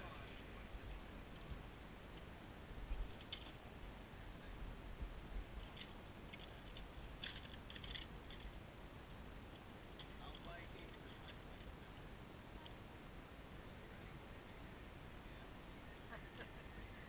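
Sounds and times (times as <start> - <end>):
carabiners clinking: 5.6 - 8.5.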